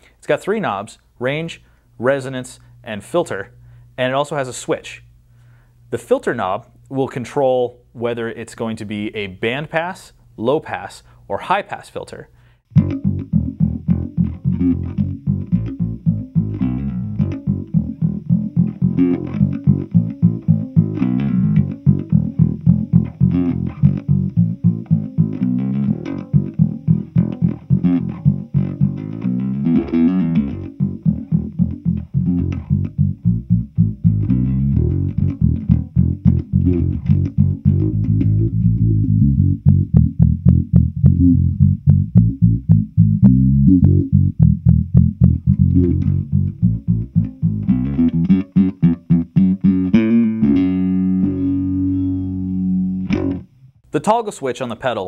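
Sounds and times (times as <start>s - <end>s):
bass guitar with envelope filter: 12.3s - 53.9s.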